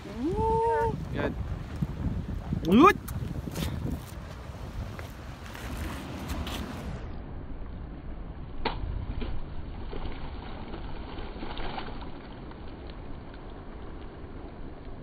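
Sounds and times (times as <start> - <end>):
wind rumbling on microphone: 0.0 - 15.0.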